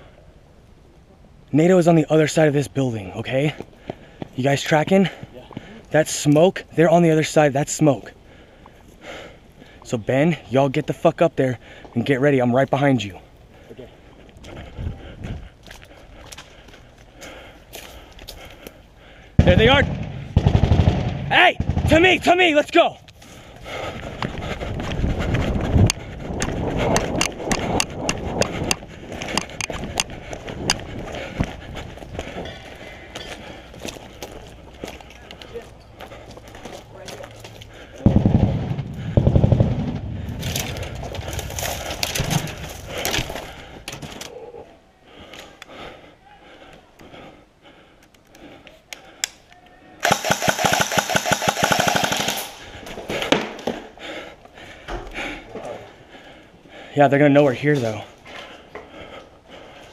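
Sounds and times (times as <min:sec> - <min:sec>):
running footsteps on dry ground: 0:03.1 - 0:06.0, 0:07.9 - 0:20.3, 0:22.0 - 0:44.5, 0:52.6 - 0:59.9
sharp irregular clicks and knocks: 0:25.8 - 0:30.8
airsoft gun full-auto burst: 0:50.0 - 0:52.7.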